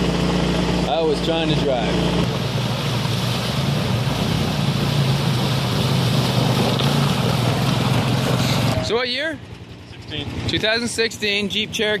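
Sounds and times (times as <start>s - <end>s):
water rushing and splashing: 0.0s - 9.1s
atv engine running: 0.0s - 12.0s.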